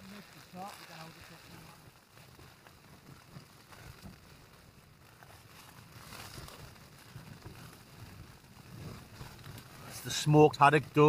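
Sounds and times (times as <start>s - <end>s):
light crackles: 0.0s - 11.0s.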